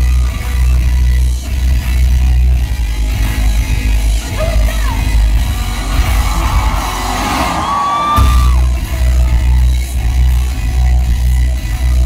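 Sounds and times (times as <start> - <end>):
crowd whooping and yelling: 0.0 - 1.2, 4.3 - 11.0.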